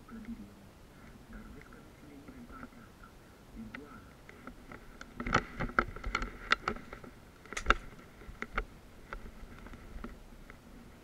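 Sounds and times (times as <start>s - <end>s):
twigs and debris snapping: 3.7s - 8.7s.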